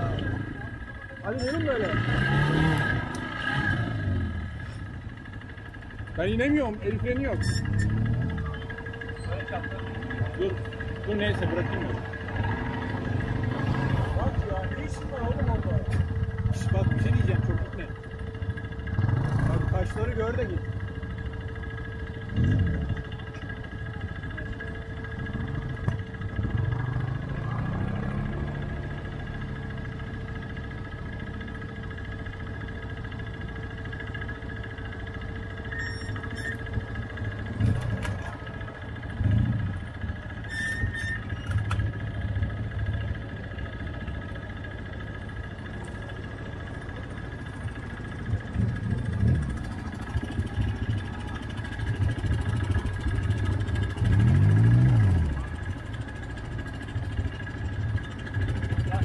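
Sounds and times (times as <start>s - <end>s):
quad engine revving: 0.0s - 4.8s, 6.9s - 17.9s, 18.8s - 20.2s, 25.6s - 30.5s, 48.1s - 55.8s
atv engines idling: 0.0s - 59.0s.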